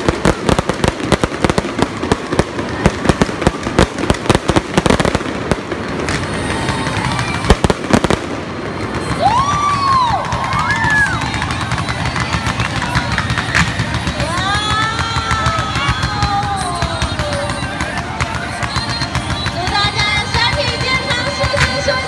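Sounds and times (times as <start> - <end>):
fireworks bangs and crackling: 0.0 - 22.0
whistle-like tones: 8.6 - 22.0.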